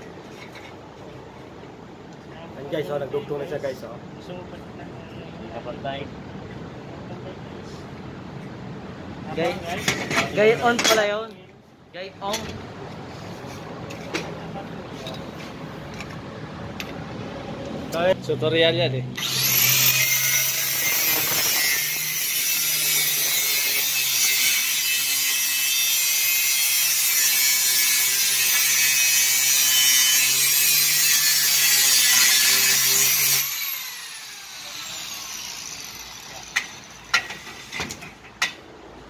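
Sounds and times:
grinder winding down whine: 19.2 - 22.1
angle grinder cutting metal: 19.2 - 37.4.

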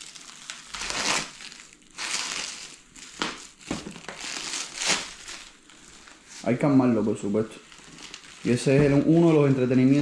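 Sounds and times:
packaging crinkling: 0.0 - 10.0.

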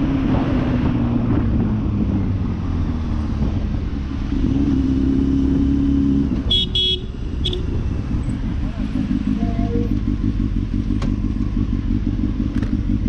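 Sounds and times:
road noise: 0.0 - 13.0
horn toots: 6.4 - 7.8
motorcycle engine running: 6.4 - 13.0.

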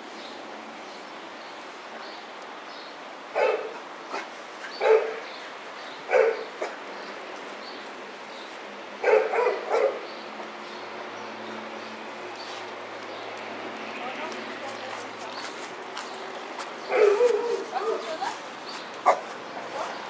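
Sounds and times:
small puppy barking: 3.4 - 5.2, 16.9 - 18.2, 19.0 - 19.9.

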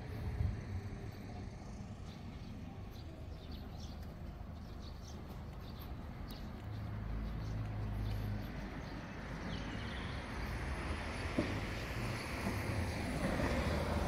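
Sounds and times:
wind rumble on microphone: 0.0 - 1.6
road traffic passing: 0.0 - 14.0.

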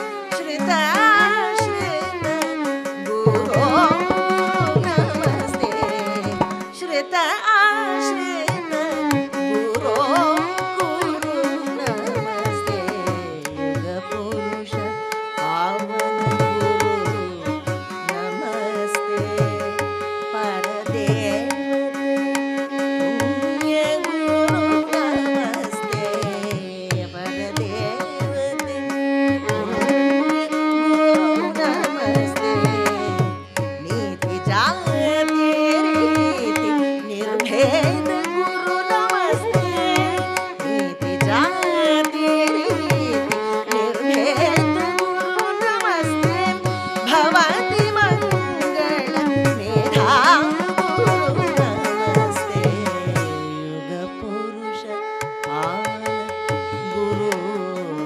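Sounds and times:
violin: 0.0 - 58.0
hand drum strokes: 0.3 - 7.3, 29.5 - 53.8
woman singing ornamented phrases: 0.3 - 21.8, 23.1 - 58.0.

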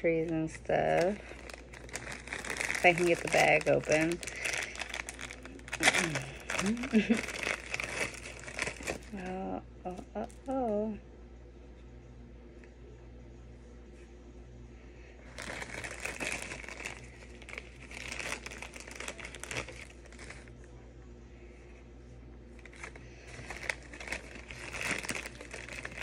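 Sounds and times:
plastic bag crinkling: 0.0 - 10.4, 15.2 - 20.5, 22.6 - 26.0.

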